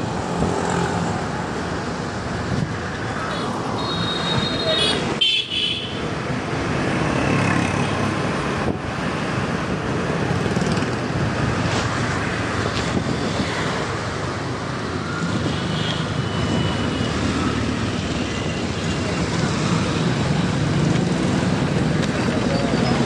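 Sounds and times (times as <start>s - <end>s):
passing traffic: 0.0s - 23.0s
wind and road noise: 0.0s - 23.0s.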